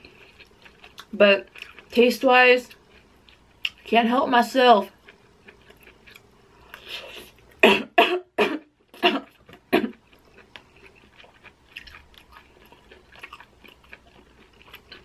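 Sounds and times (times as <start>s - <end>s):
soft chewing: 0.0s - 3.9s, 4.8s - 7.6s, 8.9s - 15.0s
woman coughing: 7.6s - 10.0s.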